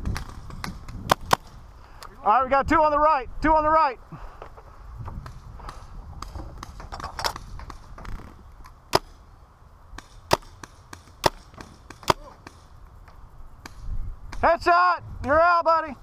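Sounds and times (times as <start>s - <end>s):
paintball marker shots: 0.0s - 1.6s, 5.2s - 9.2s, 9.9s - 14.5s.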